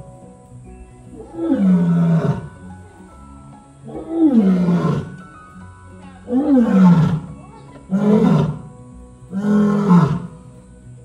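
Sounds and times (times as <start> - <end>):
lioness roaring: 1.2 - 2.6, 3.8 - 5.2, 6.3 - 7.3, 7.9 - 8.7, 9.3 - 10.4.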